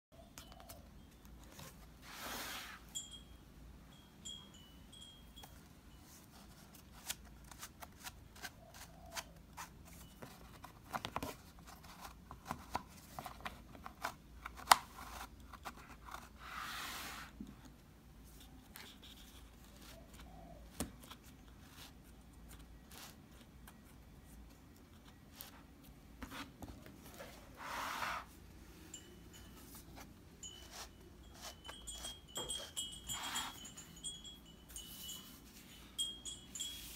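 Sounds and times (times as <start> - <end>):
cardboard rustling slides: 2.0 - 2.9, 16.3 - 17.4, 26.2 - 28.4.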